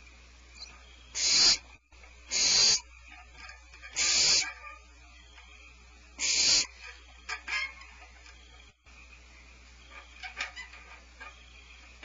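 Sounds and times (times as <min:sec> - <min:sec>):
owl chicks hissing: 0:00.6 - 0:03.0, 0:03.9 - 0:04.7, 0:06.2 - 0:07.0.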